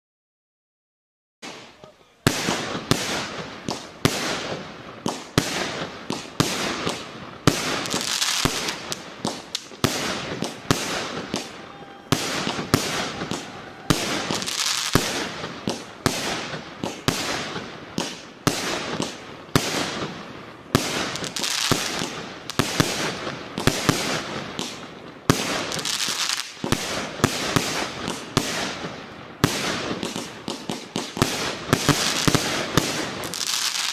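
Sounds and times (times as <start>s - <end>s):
firework shells bursting: 1.4s - 20.2s
firework hiss: 1.4s - 33.9s.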